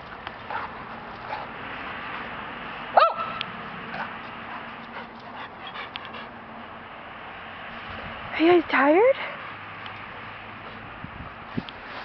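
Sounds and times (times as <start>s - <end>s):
dog barking: 3.0s - 4.1s.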